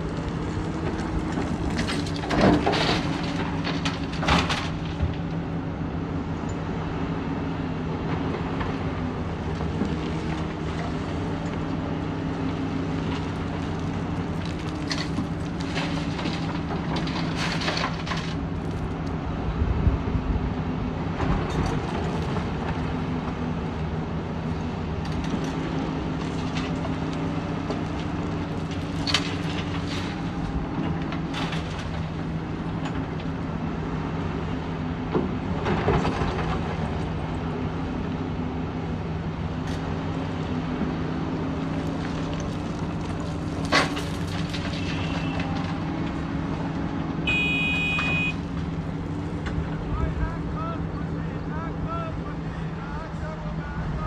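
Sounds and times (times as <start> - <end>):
excavator diesel engine: 0.0 - 54.0
rocks clattering into truck bed: 42.4 - 45.8.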